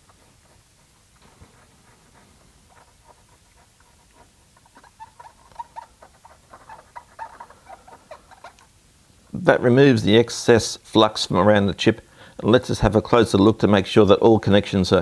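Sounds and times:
cotton swab squeaky scratching: 0.0 - 8.8.

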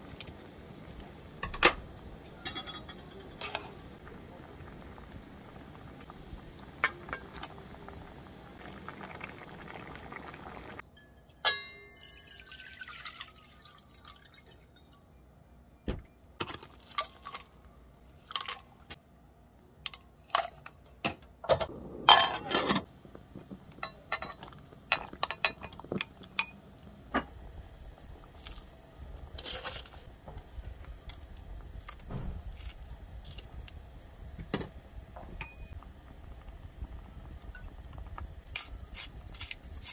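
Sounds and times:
pot heating rumble: 0.0 - 10.8, 21.5 - 39.9
knocks and clinks in a pot: 1.4 - 3.8, 10.8 - 12.8, 20.3 - 22.9, 23.7 - 27.4
stew bubbling: 2.0 - 10.8, 21.7 - 29.4, 35.3 - 39.9.

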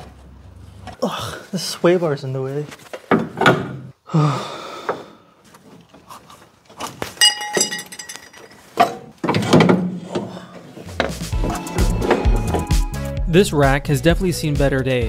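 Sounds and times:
metallic ring: 7.2 - 8.7
metal tools clinking: 7.2 - 9.1.

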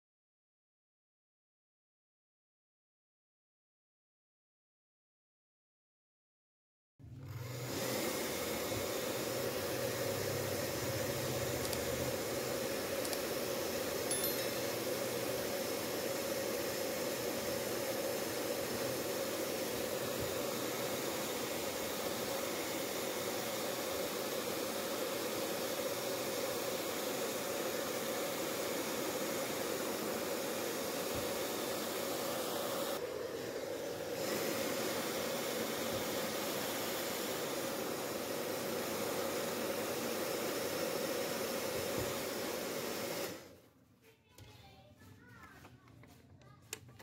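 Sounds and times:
heat gun blowing hiss: 7.6 - 43.5.

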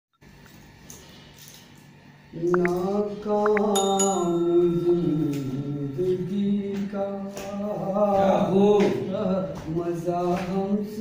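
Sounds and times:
man singing chant-like melody: 2.3 - 11.0.

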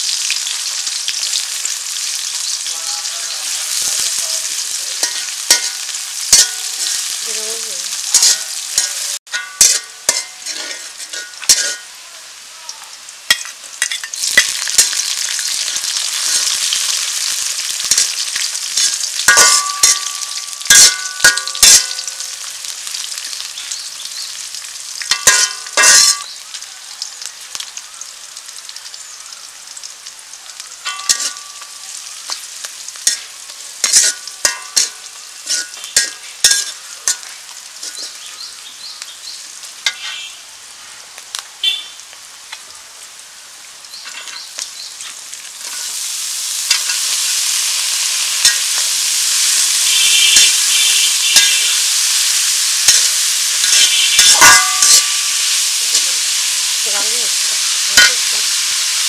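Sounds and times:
vegetables sizzling in oil: 0.0 - 59.0
metal spatula scraping a wok: 3.4 - 7.2, 8.0 - 11.9, 17.8 - 22.3, 25.1 - 26.3, 30.9 - 31.7, 33.0 - 38.3, 39.8 - 40.4, 45.6 - 46.1, 48.4 - 57.0.

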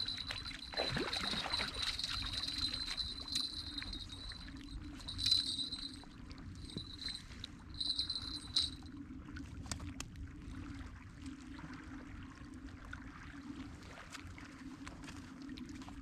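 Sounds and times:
waves lapping at shore: 0.0 - 4.4.

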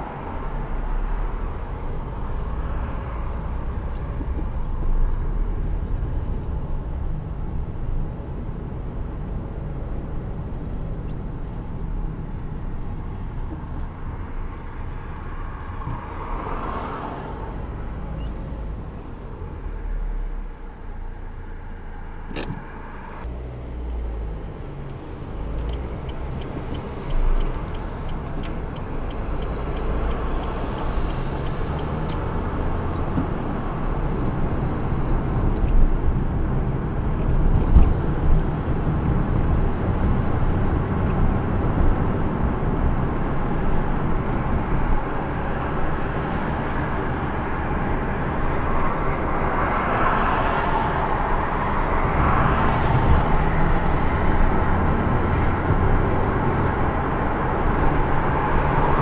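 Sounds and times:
car engine and road noise: 0.0 - 59.0
light regular ticking: 25.6 - 32.2.

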